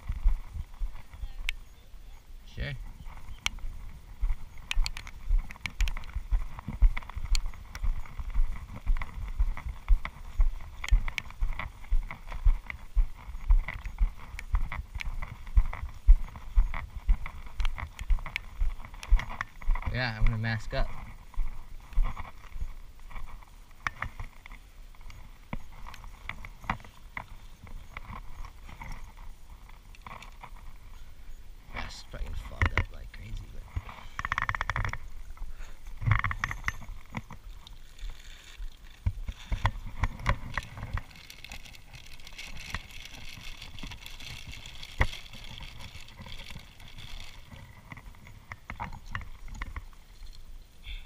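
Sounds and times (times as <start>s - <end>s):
footsteps on grass: 2.8s - 32.6s
camera clicks and rattles: 3.1s - 31.0s, 32.1s - 50.5s
light handling clicks and knocks: 32.2s - 35.2s, 35.8s - 50.5s.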